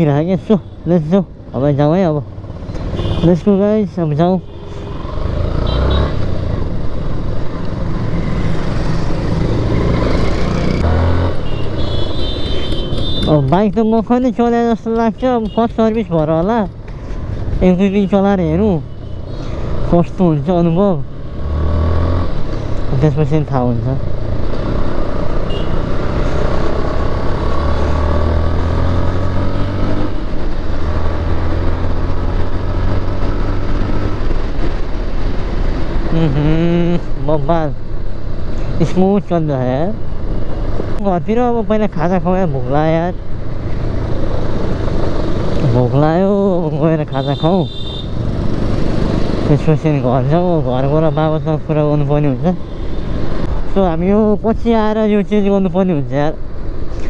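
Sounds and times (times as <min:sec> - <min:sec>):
road and wind noise: 0:00.0 - 0:57.0
motorcycle engine under load: 0:07.2 - 0:17.6.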